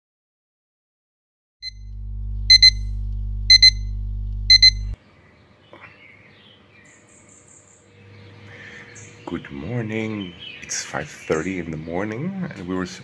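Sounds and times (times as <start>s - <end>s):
low steady hum: 1.6s - 5.0s
alarm clock beeping: 2.5s - 2.9s, 3.5s - 3.9s, 4.5s - 5.0s.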